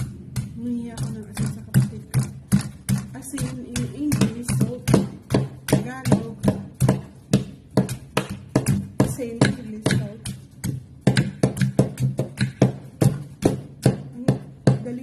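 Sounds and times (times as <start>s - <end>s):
person speaking: 3.0s - 5.1s.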